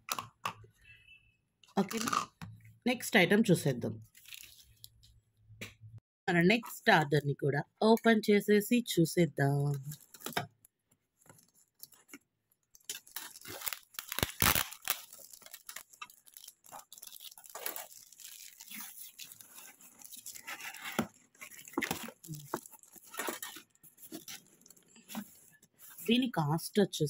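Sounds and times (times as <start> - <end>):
cardboard box and tape tearing: 12.9 - 24.5.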